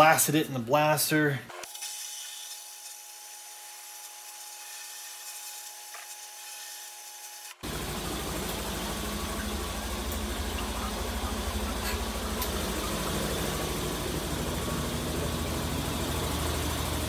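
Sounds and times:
low machine hum: 7.6 - 17.0.

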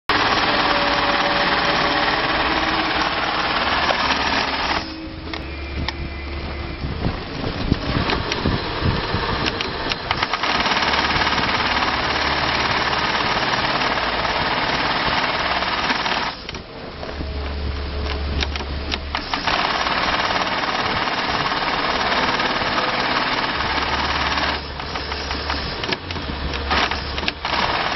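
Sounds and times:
sewing machine stitching: 0.1 - 5.0, 9.4 - 16.5, 18.4 - 27.9
low machine hum: 0.1 - 27.6
scattered clicks: 9.4 - 14.0, 17.4 - 21.2.

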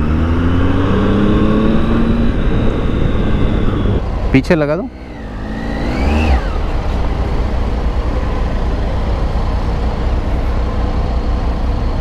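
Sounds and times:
short rising and falling tone: 0.0 - 4.1, 4.8 - 8.6
motorcycle engine rumbling: 0.0 - 12.0.

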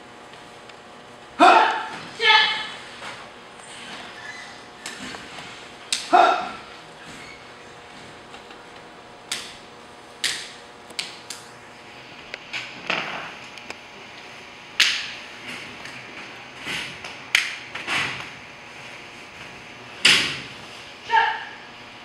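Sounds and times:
uniforms snapping: 5.9 - 6.2, 9.3 - 9.6, 10.2 - 11.5.

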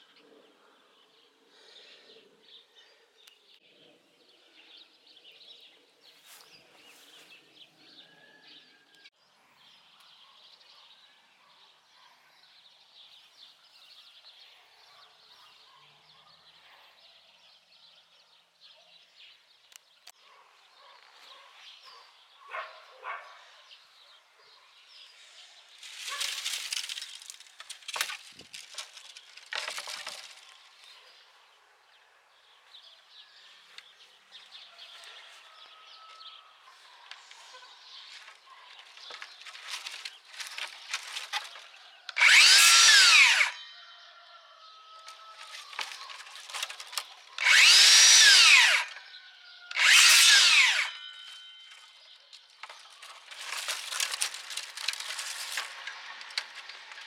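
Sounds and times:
dry branches rustling: 25.0 - 31.3, 36.7 - 43.6, 45.0 - 49.0, 49.7 - 57.0
circular saw cutting branches: 25.2 - 31.1, 38.1 - 43.7, 45.0 - 57.0.

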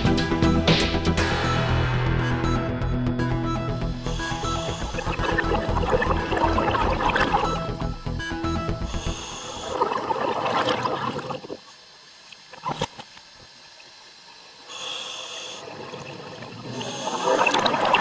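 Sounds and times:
exhaled bubbles underwater: 4.9 - 7.7, 9.6 - 11.6, 15.6 - 18.0.

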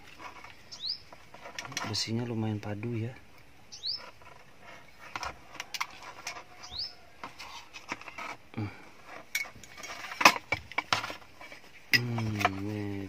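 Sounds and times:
bird chirp: 0.5 - 1.2, 3.6 - 5.1, 6.5 - 7.2.

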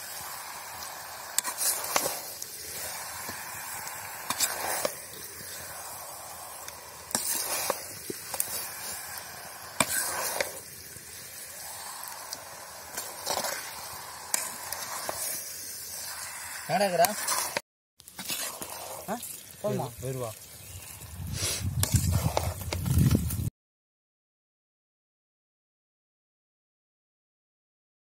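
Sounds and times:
frying sizzle: 0.0 - 23.5
metal spatula scraping pan: 1.2 - 10.7, 11.3 - 19.4, 21.4 - 22.7.

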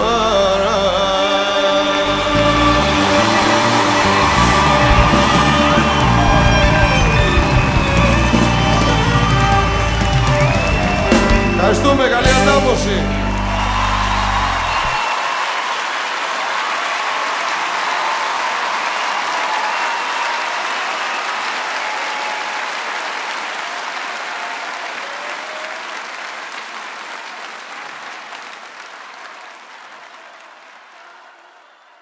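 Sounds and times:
large audience applauding: 1.2 - 32.0.

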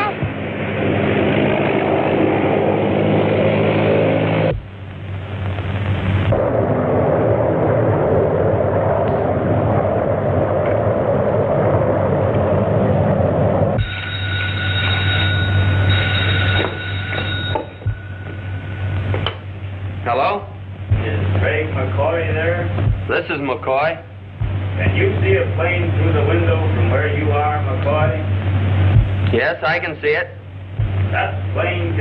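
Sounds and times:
biplane engine droning: 0.0 - 32.0
telephone bell ringing: 13.8 - 18.2.

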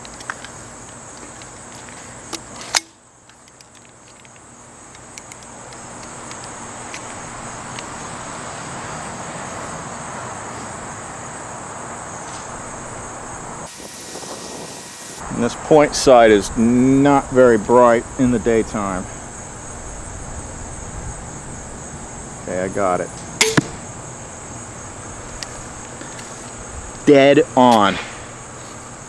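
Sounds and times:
insects buzzing: 0.0 - 29.0
sharp click: 23.2 - 23.8.

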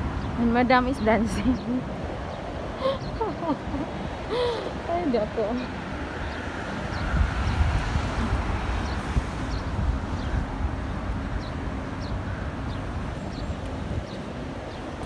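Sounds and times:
street traffic rush: 0.0 - 15.0
wind buffeting microphone: 0.0 - 15.0.

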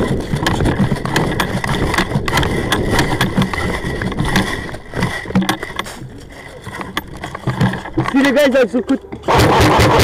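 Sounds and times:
camera handling rumble: 0.0 - 9.2
gear knocking: 0.0 - 10.0.

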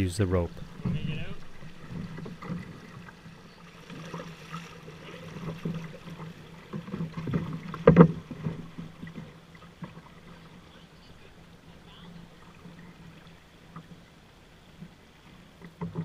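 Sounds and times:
water rushing past canoe hull: 0.0 - 16.0
knocks on canoe hull: 6.7 - 9.2.

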